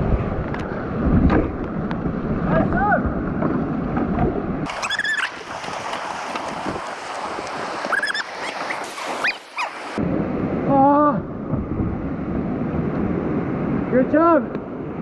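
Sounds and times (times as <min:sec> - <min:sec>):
short high-pitched calls: 0:04.7 - 0:05.4, 0:07.9 - 0:09.8
rushing river whitewater: 0:04.7 - 0:10.0.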